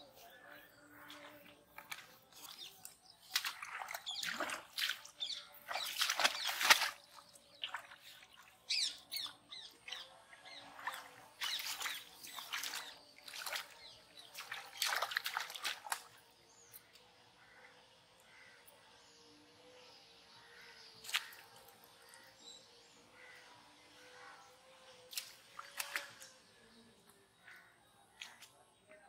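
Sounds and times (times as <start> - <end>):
wading in shallow water: 0.0 - 29.0
fish flapping in water: 3.3 - 7.9.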